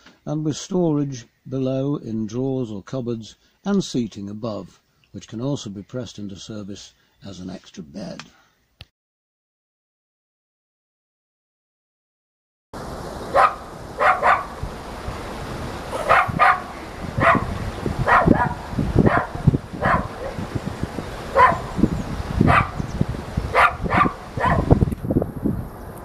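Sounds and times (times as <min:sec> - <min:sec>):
wind rumbling on microphone: 0:12.8 - 0:26.0
small dog yapping: 0:13.3 - 0:14.5, 0:15.9 - 0:20.4, 0:21.3 - 0:21.8, 0:22.4 - 0:22.8, 0:23.5 - 0:24.8.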